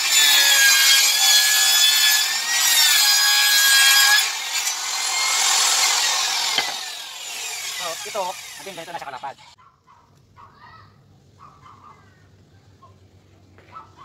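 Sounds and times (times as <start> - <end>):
table saw cutting wood: 0.0 - 9.6.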